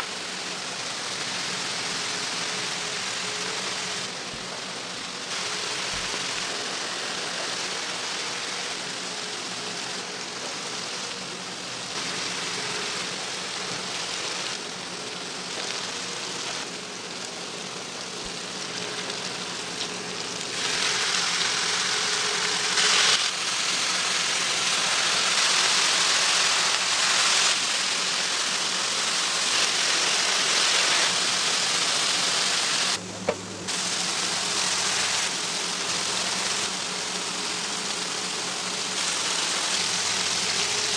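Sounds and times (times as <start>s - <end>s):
patties sizzling on a griddle: 0.0s - 33.0s, 33.7s - 40.9s.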